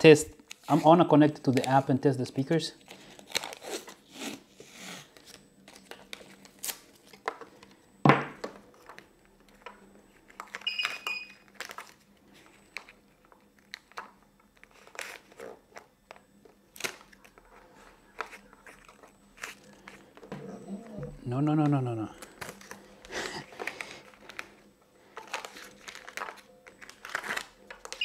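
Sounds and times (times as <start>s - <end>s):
tape tearing and crackling: 2.9s - 4.4s, 5.0s - 7.3s, 13.6s - 15.6s, 16.7s - 17.4s, 25.2s - 28.0s.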